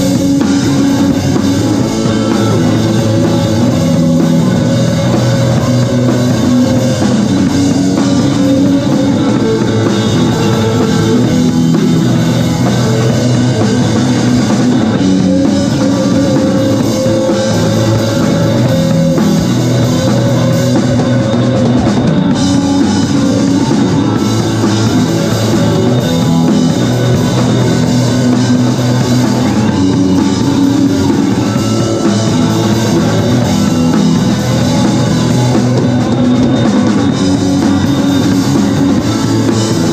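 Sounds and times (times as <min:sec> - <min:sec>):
rock band playing loudly: 0:00.0 - 0:39.9.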